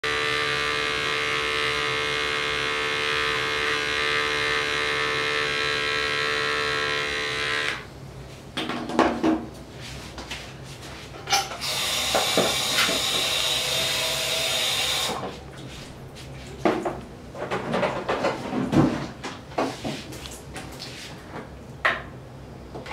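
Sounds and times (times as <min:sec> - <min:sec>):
electric hair clippers running: 0:00.0 - 0:07.9, 0:11.6 - 0:15.2.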